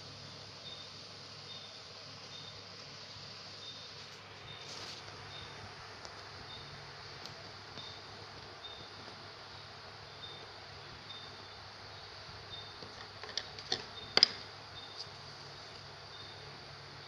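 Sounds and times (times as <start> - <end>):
steady hiss: 0.0 - 17.0
pencil clicks and taps: 12.8 - 14.5.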